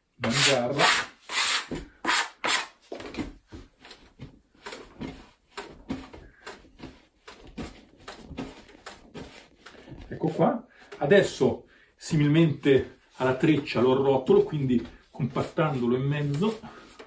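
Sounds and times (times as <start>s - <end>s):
hands kneading bread dough: 3.4s - 17.0s.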